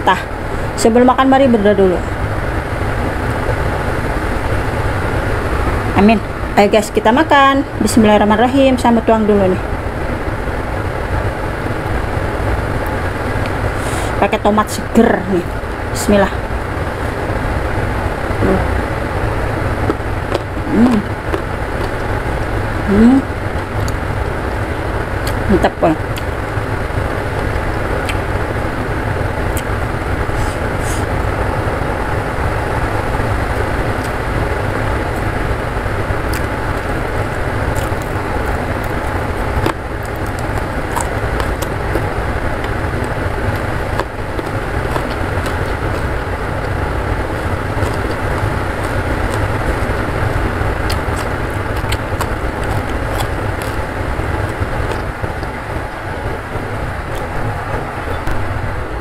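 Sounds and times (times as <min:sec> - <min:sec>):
chewing and eating clicks: 0:19.8 - 0:22.2, 0:23.5 - 0:24.0, 0:27.3 - 0:28.3, 0:36.2 - 0:58.4
heavy rain pouring: 0:26.4 - 0:59.0.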